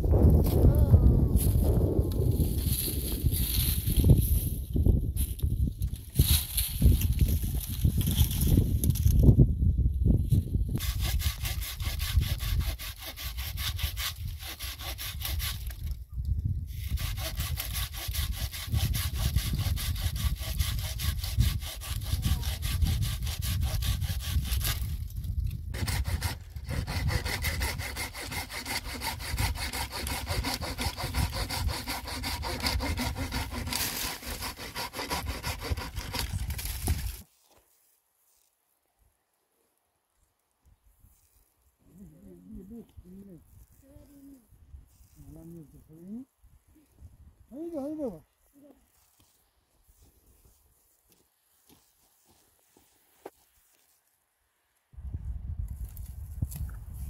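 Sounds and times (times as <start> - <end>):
hand saw sawing wood: 10.8 - 15.9, 16.7 - 25.0, 25.8 - 37.2.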